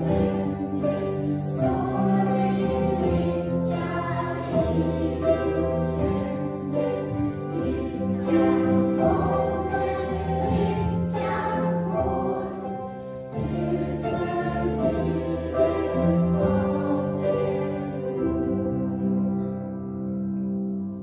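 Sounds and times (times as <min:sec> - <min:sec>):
children's choir singing a hymn: 0:00.0 - 0:19.6.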